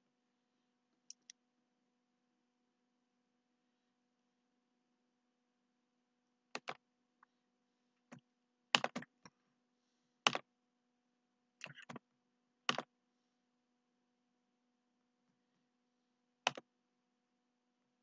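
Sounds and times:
computer mouse clicks: 1.0 - 1.4, 8.0 - 9.4, 11.6 - 12.0, 16.4 - 16.7.

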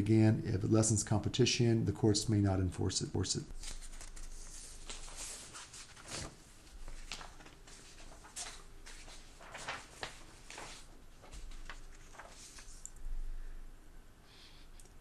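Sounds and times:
paper rustling and scraping: 3.6 - 12.9.

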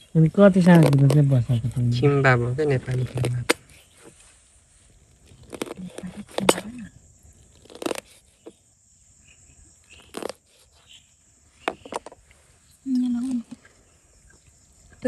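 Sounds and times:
person biting and chewing: 0.6 - 1.3, 2.8 - 3.8, 5.2 - 6.7, 7.4 - 8.2, 10.0 - 10.5.

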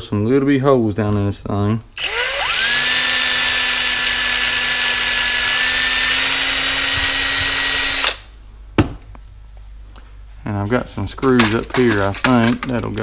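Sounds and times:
cordless drill whining: 2.0 - 8.3.

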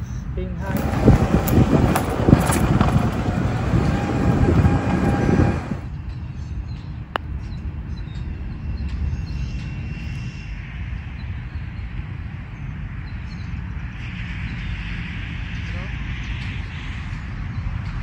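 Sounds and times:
outdoor ambience: 0.0 - 18.0
loud rushing rumble: 0.6 - 5.9.

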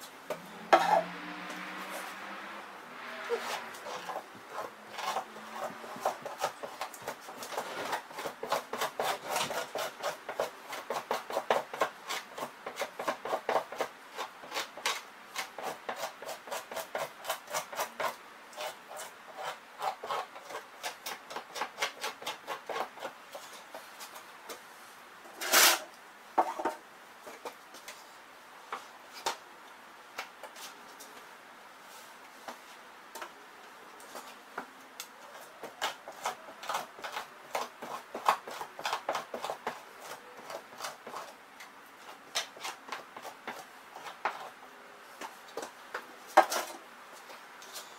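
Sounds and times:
knife scraping hide: 0.3 - 1.1, 3.2 - 24.2, 25.4 - 26.6, 35.3 - 41.4, 42.0 - 44.6.

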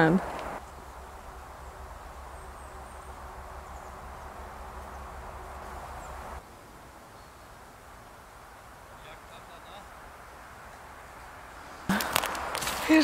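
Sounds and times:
low rumble: 0.0 - 6.4
steady hiss: 0.0 - 13.0.

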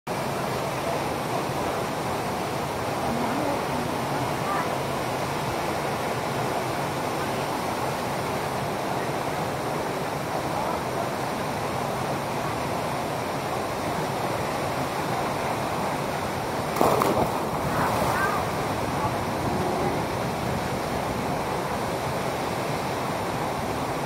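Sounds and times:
waterfall rushing: 0.1 - 24.0
person diving into water: 16.7 - 20.0.

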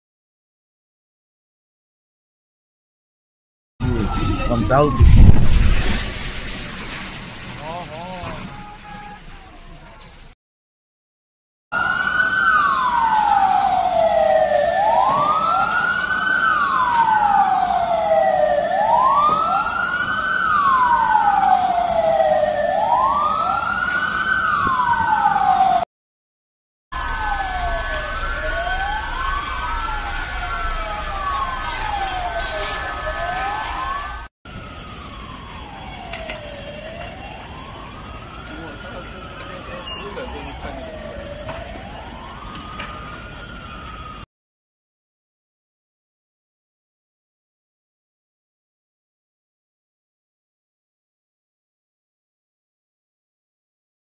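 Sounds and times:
steady siren tones: 3.8 - 9.4, 11.7 - 25.9, 27.0 - 44.3
emergency sirens wailing: 3.8 - 10.1, 11.7 - 25.9, 27.0 - 44.3.

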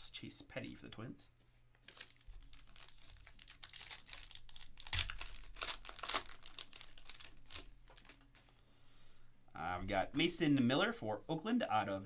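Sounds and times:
foil wrapper crinkling and tearing: 1.8 - 8.3.

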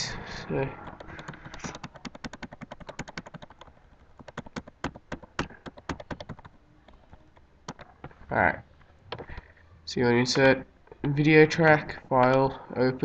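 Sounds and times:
keyboard keys tapping: 0.8 - 8.2.

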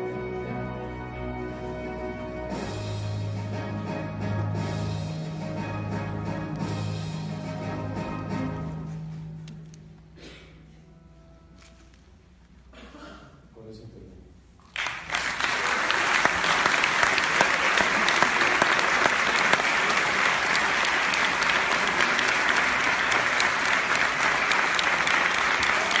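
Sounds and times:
large audience applauding: 14.7 - 26.0.

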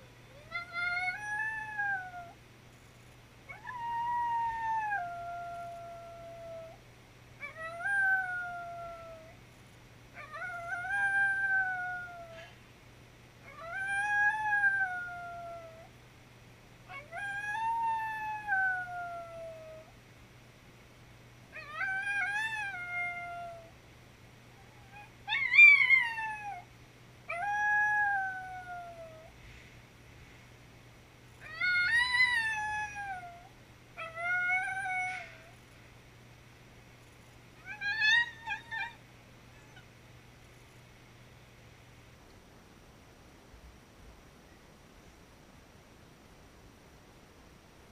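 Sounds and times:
dog howling: 0.3 - 2.4, 3.5 - 6.8, 7.4 - 9.4, 10.2 - 12.5, 13.5 - 15.9, 16.9 - 19.9, 21.6 - 23.7, 24.6 - 26.7, 27.3 - 29.3, 31.4 - 35.6, 37.6 - 39.0.

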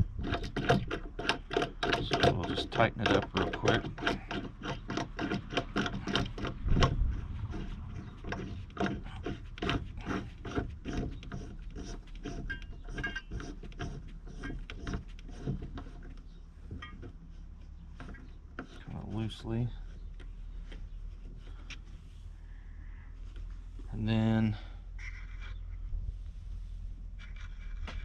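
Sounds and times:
metal clicks and rubs: 0.0 - 22.0, 25.0 - 25.9, 26.6 - 28.0.

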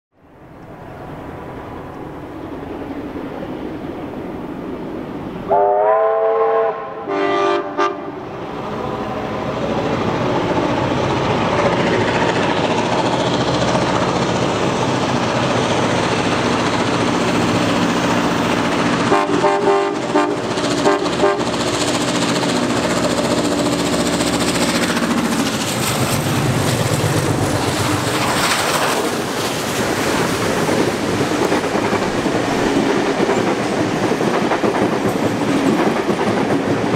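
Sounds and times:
train running noise: 0.3 - 36.9
train horn blasts: 5.5 - 8.2, 19.1 - 21.5
carriages rumbling and clattering: 8.7 - 36.9.

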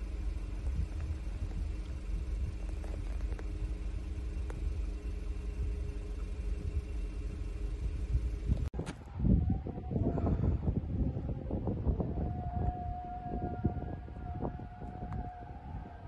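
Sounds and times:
car engine idling: 0.0 - 8.7.

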